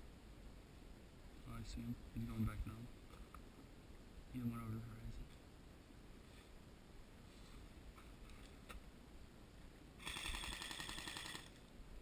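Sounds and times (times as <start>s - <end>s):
airsoft gun full-auto burst: 10.0s - 11.6s.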